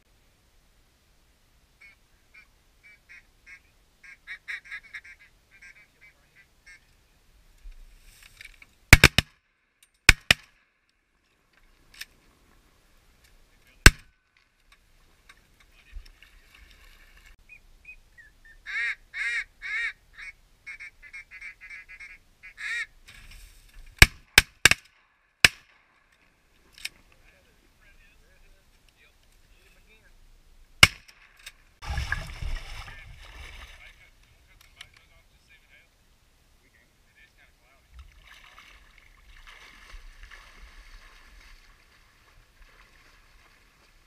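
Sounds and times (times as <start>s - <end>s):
ducks quacking: 1.8s - 6.9s, 18.6s - 22.9s
shotgun shots: 8.9s - 9.4s, 10.1s - 10.5s, 13.9s - 14.1s, 30.8s - 31.3s.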